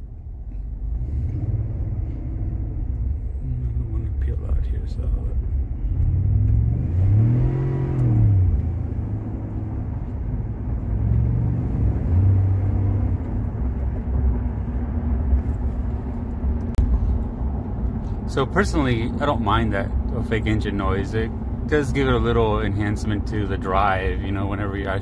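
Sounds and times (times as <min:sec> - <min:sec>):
truck engine accelerating: 0:00.5 - 0:25.0.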